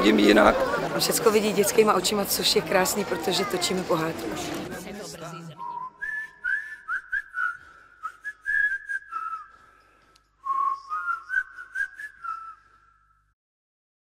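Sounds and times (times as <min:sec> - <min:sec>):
whistled tune: 0:05.6 - 0:09.8, 0:10.4 - 0:13.4.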